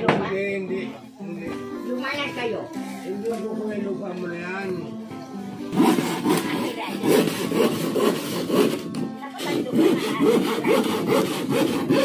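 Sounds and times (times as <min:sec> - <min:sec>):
hand saw cutting wood: 0:05.7 - 0:12.0.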